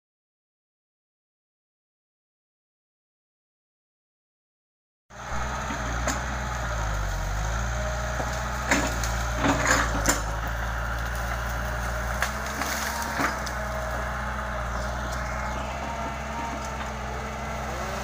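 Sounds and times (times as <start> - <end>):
excavator diesel engine running: 5.1 - 18.0
wood cracking and splintering: 8.0 - 17.1.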